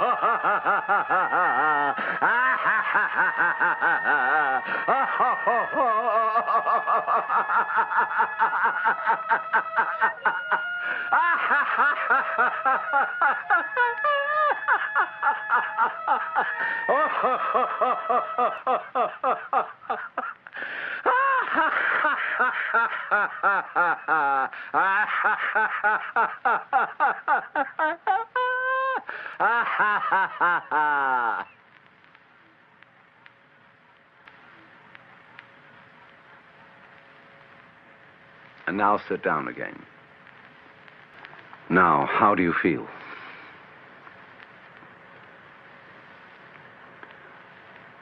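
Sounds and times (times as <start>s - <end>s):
long high wail: 0.0s - 18.8s
man laughing out loud: 0.0s - 31.6s.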